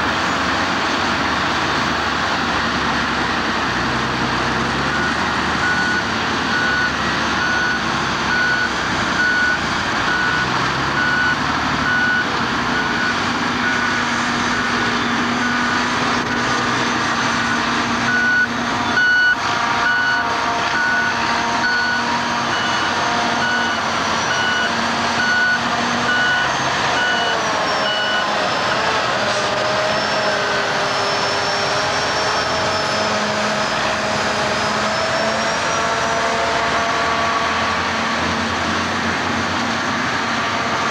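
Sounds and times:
heavy diesel truck engines: 0.0s - 40.9s
reversing alarm beeping: 4.6s - 29.0s, 29.6s - 37.3s.

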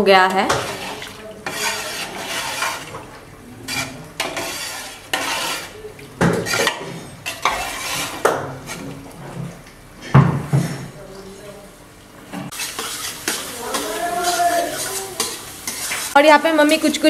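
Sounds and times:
metal ladle scraping pot: 0.4s - 9.0s, 12.5s - 16.2s
ladle clanking on pot: 3.7s - 9.0s.

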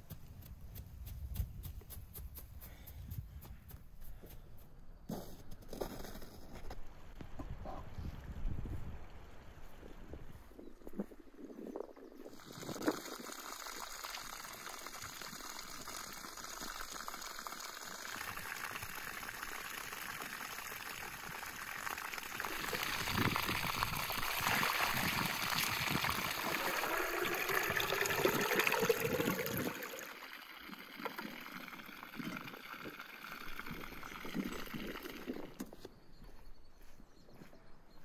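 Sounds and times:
water pouring into a metal vessel: 12.3s - 35.6s
water running from a hose: 12.3s - 35.6s.

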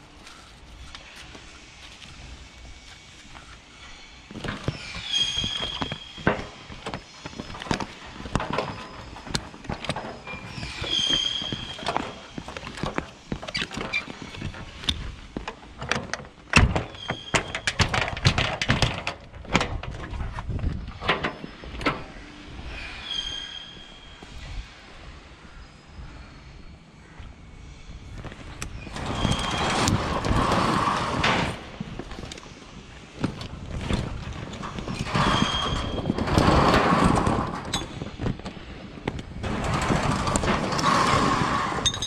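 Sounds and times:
short high squeaks: 3.8s - 15.0s, 16.8s - 18.1s, 20.8s - 24.7s, 28.6s - 31.6s, 34.4s - 38.2s
metal buckles clacking and rattling: 4.3s - 22.2s, 28.6s - 42.0s.

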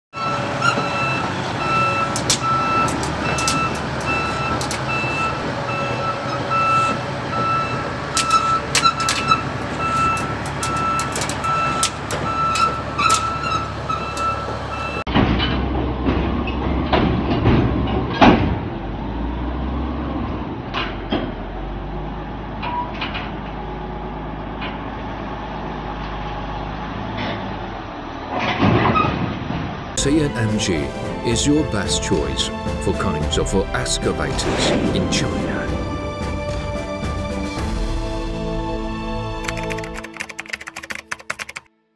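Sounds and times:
bulldozer diesel engine running: 0.1s - 28.6s, 29.3s - 39.9s
reversing alarm beeping: 0.2s - 15.1s
steel tracks clanking: 0.2s - 18.9s.

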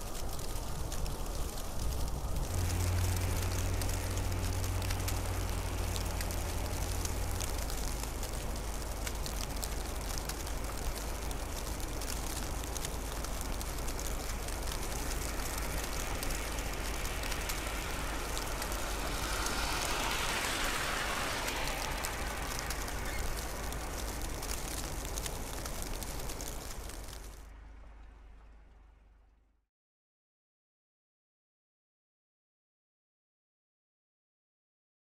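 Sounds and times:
fine scattered ticks: 0.0s - 27.4s
constant hiss: 0.0s - 29.4s
low rumble: 0.1s - 29.4s.

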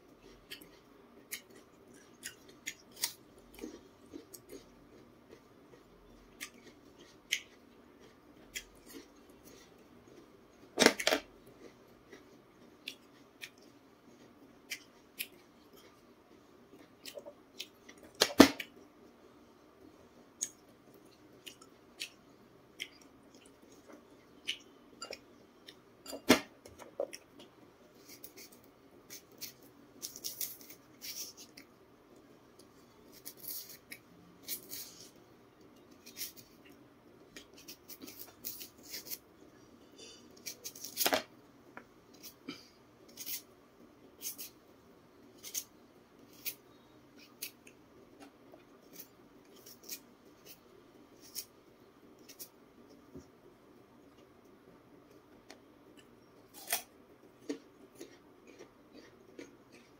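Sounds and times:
knife scraping vegetable skin: 33.1s - 33.8s, 37.6s - 39.2s, 43.1s - 43.4s, 44.2s - 44.5s, 45.4s - 45.7s, 46.3s - 46.6s, 48.9s - 50.6s, 51.2s - 51.5s.

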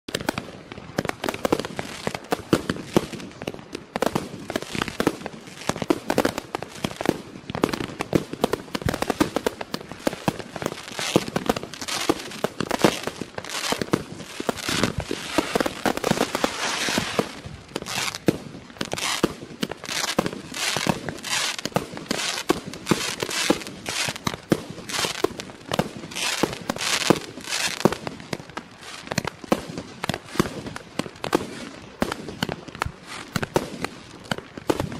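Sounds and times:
crackling firework stars: 0.1s - 34.9s
firework launch thumps and bursts: 12.1s - 28.0s.

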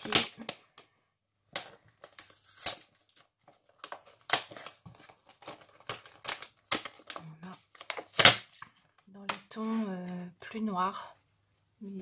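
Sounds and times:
packaging rustling and crinkling: 1.6s - 9.1s.

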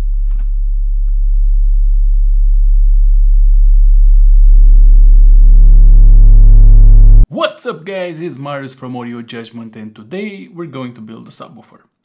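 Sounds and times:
deep bass test tone: 0.0s - 7.2s.

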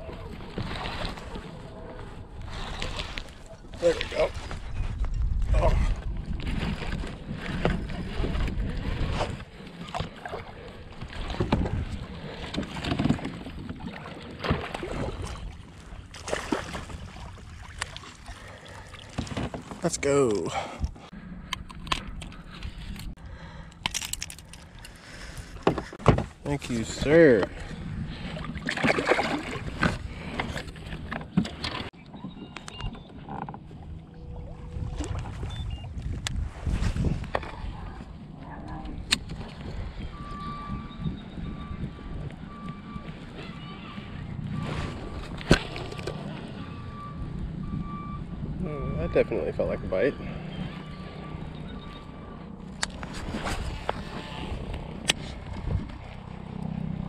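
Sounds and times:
water splashes: 0.0s - 4.7s, 5.4s - 20.6s, 26.6s - 31.9s, 33.7s - 36.8s, 42.4s - 47.0s
wind buffeting microphone: 0.0s - 10.1s, 10.8s - 14.0s, 33.9s - 51.8s, 53.0s - 56.6s.

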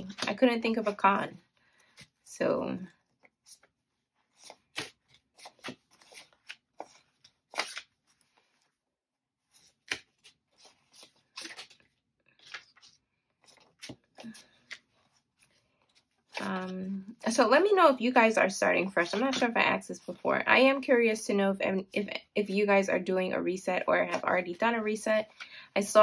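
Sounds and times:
paper banknotes rustling: 3.0s - 8.8s, 9.4s - 16.8s.

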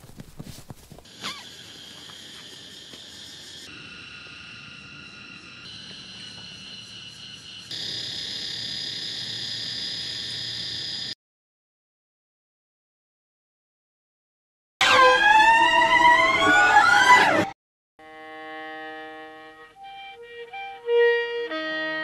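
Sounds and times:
cicadas buzzing: 1.0s - 11.2s.

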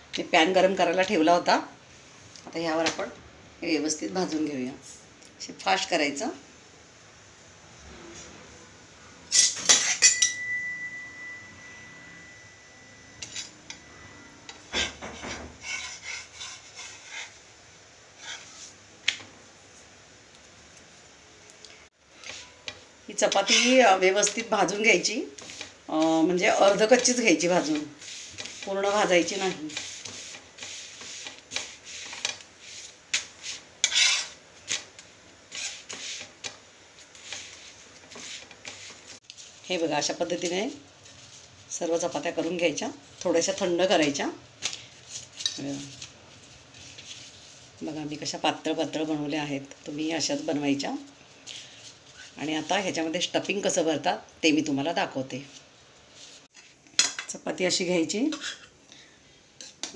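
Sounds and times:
spatula scraping a griddle: 9.3s - 10.2s, 13.0s - 17.5s, 18.1s - 18.8s, 22.2s - 39.2s, 58.3s - 58.7s.

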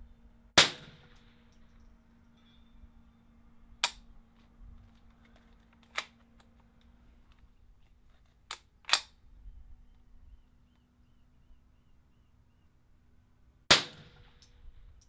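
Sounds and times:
rifle shots: 0.6s - 1.4s, 13.7s - 14.4s.

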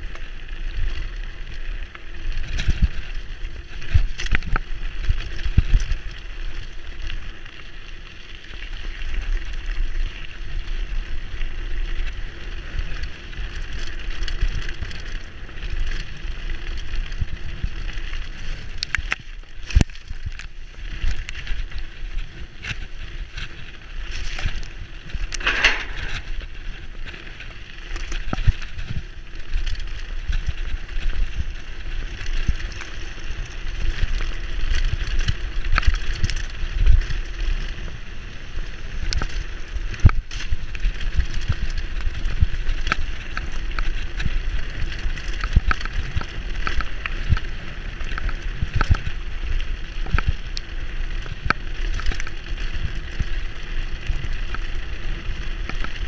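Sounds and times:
bike knocking and rattling: 0.0s - 56.0s
bike tyres rumbling over gravel: 0.0s - 56.0s
wind on microphone: 22.6s - 27.2s.

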